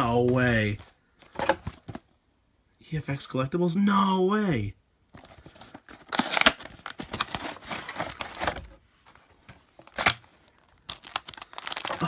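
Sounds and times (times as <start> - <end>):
plastic wrapping crinkling: 5.2 - 9.2, 9.8 - 12.0.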